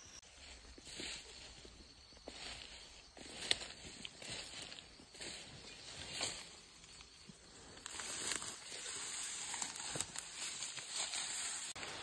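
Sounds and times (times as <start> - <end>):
grass rustling and crackling: 0.0 - 12.0
steady high hiss: 6.1 - 12.0.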